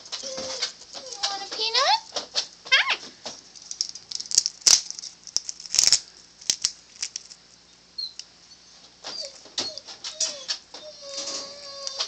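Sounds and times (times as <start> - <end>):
faint squeak: 8.0 - 12.0.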